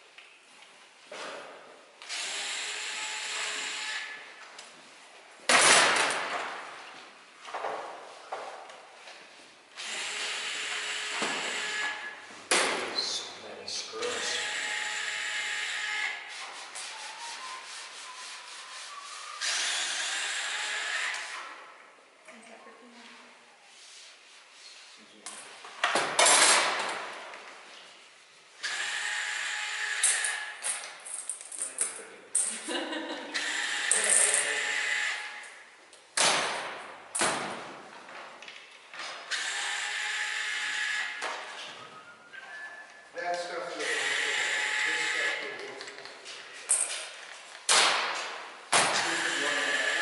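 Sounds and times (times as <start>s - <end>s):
cordless drill whirring: 2.0s - 4.2s, 9.8s - 12.1s, 19.4s - 21.4s, 28.6s - 30.5s, 33.4s - 35.4s, 39.3s - 41.2s, 43.8s - 45.4s, 49.0s - 50.0s.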